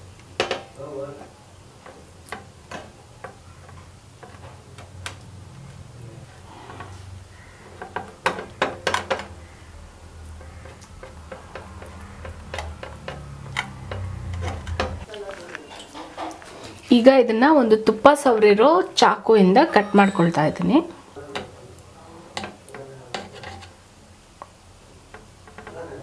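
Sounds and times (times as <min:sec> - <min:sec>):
clicks and taps on metal bowl: 0:10.4 - 0:14.1.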